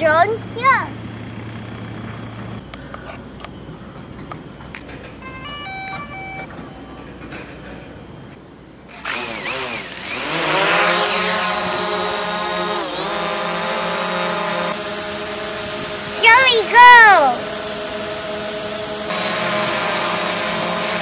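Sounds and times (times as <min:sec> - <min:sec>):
drone propeller motors whirring: 0:08.9 - 0:21.0.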